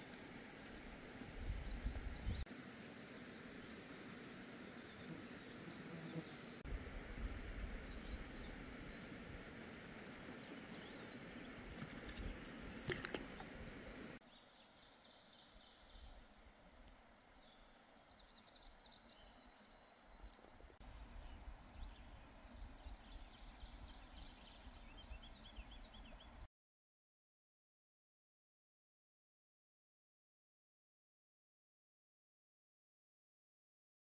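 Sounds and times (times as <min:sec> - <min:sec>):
background hiss: 0:00.0 - 0:19.9
small birds chirping: 0:01.0 - 0:02.4, 0:09.9 - 0:16.2, 0:16.8 - 0:26.4.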